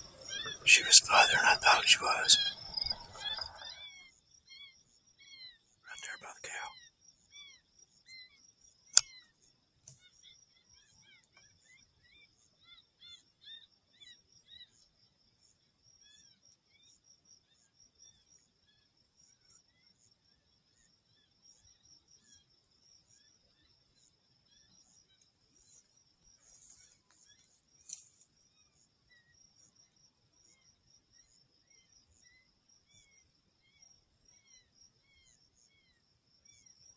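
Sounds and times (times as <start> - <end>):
night insects chirping: 0.0 - 36.9.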